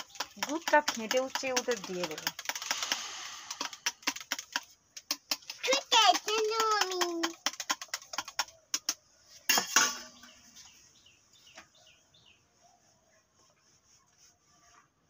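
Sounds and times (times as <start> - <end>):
metal utensils clinking: 9.5 - 10.2.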